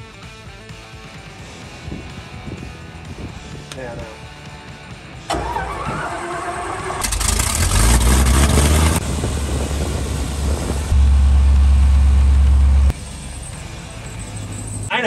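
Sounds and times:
propeller aircraft engine droning: 5.3 - 14.9.

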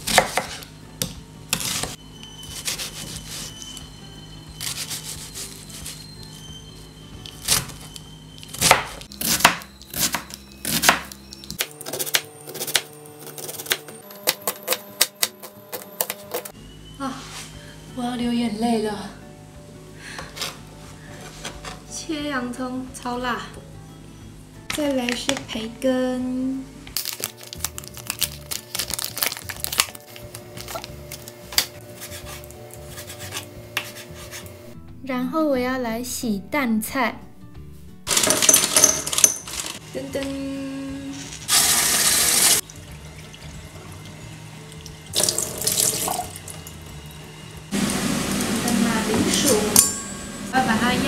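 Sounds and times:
soft background music: 0.0 - 51.0
plastic packet crinkling: 27.0 - 31.3.

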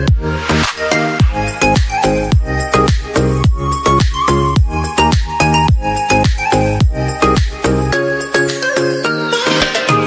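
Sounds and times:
kick drum beat: 0.0 - 0.3, 1.2 - 7.6.

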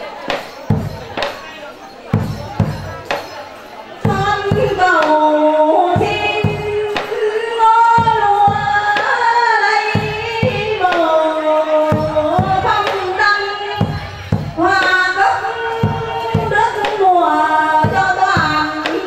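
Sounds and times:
percussion strokes: 0.0 - 19.0
woman singing into a microphone: 4.0 - 19.0.

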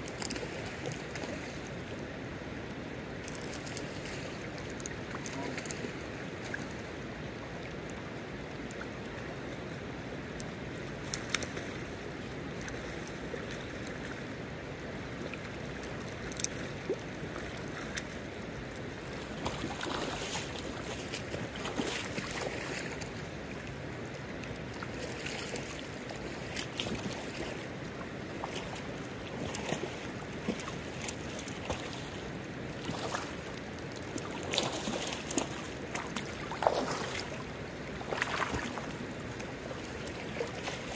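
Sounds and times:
river running over stones: 0.0 - 40.9
splashing in water: 19.2 - 23.0, 28.3 - 40.9.

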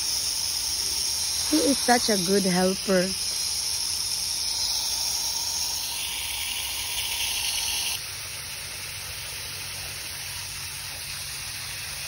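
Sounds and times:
hose nozzle spraying water: 0.0 - 8.0.

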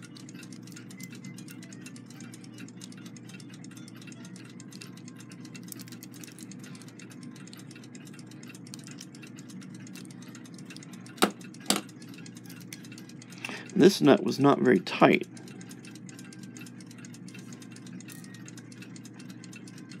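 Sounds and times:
fast clock ticking: 0.0 - 20.0
sharp metallic clicks: 0.0 - 20.0
steady low hum: 0.0 - 20.0.

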